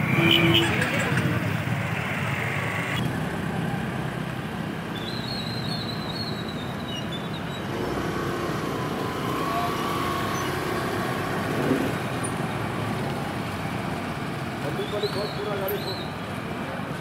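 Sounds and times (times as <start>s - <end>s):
motorcycles and scooters passing: 0.0s - 4.9s, 7.6s - 14.8s
traffic hum: 0.0s - 17.0s.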